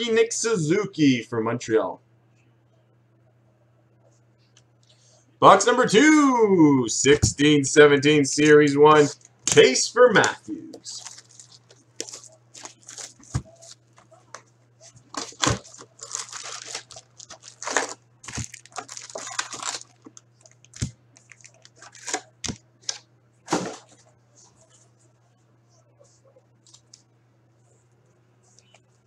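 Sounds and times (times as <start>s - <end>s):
foil packs crinkling: 10.8s - 23.6s
plastic shrink wrap tearing: 10.9s - 13.8s, 15.1s - 22.6s.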